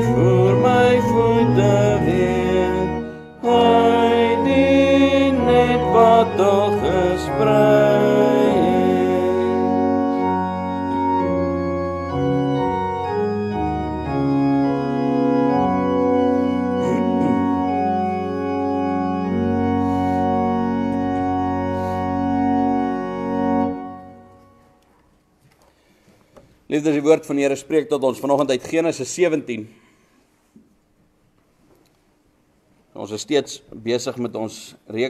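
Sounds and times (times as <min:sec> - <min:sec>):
organ playing hymn chords: 0:00.0 - 0:25.2.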